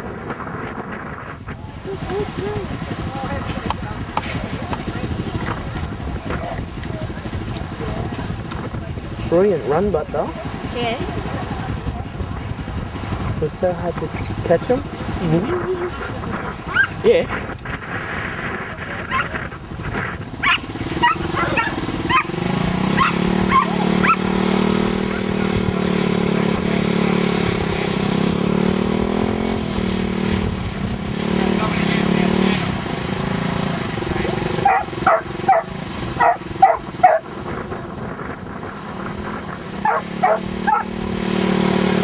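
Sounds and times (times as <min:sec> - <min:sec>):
dog yelping excitedly: 0:16.7 - 0:17.0, 0:20.4 - 0:24.2, 0:34.6 - 0:37.2, 0:39.8 - 0:40.9.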